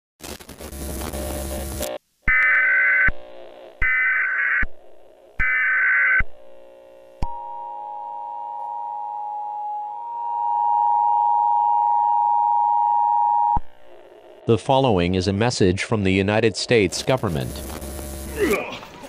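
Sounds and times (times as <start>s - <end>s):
screeching data bursts: 1.2s - 4.7s.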